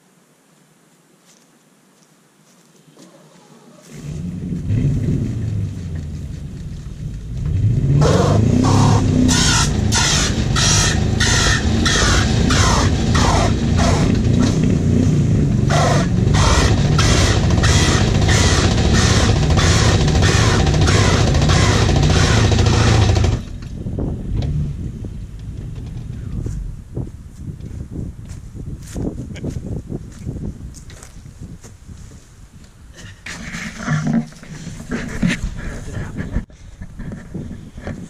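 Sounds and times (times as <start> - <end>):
low rumble: 4.0 - 31.1
loud rock music: 15.7 - 23.4.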